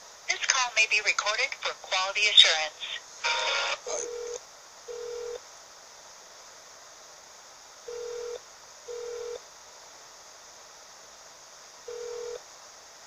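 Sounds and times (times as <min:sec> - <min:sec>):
phone line hiss: 0:02.8 - 0:05.4, 0:07.8 - 0:09.4, 0:11.8 - 0:12.4.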